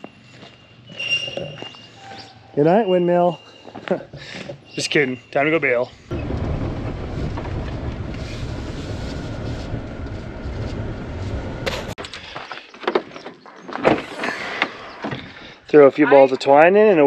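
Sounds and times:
truck engine rumble from cab: 6.1 - 12.0.

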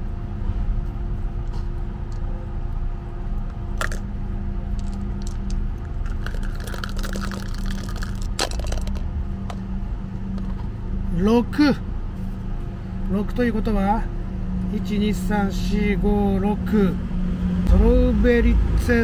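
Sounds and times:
dice rattling in plastic pot: 3.8 - 4.0, 4.8 - 9.1.

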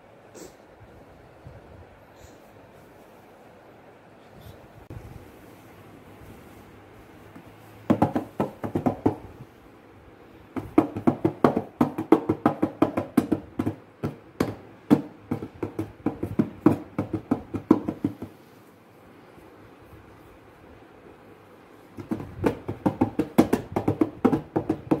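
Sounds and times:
hands slapping cardboard box: 7.3 - 9.2, 10.6 - 18.4, 22.0 - 25.0.

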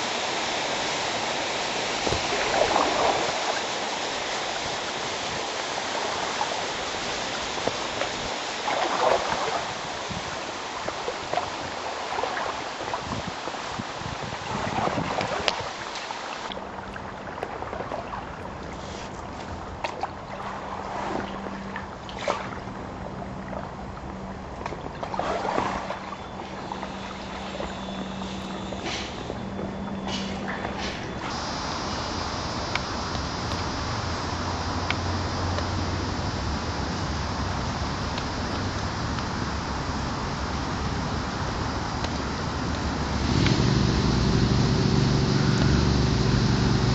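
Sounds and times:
steady rushing noise: 0.0 - 16.8, 30.4 - 46.9
low steady hum: 0.0 - 46.9
paddle swishing through water: 0.0 - 46.9.

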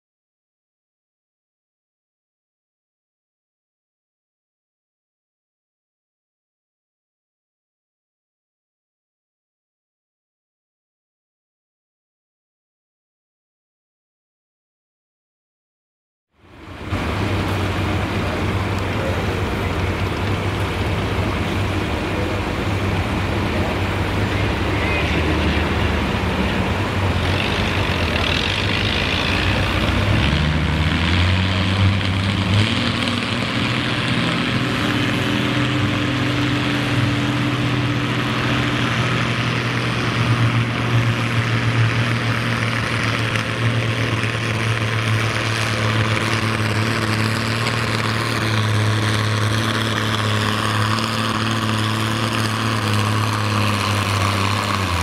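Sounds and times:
tractor engine running hard: 16.4 - 55.0.

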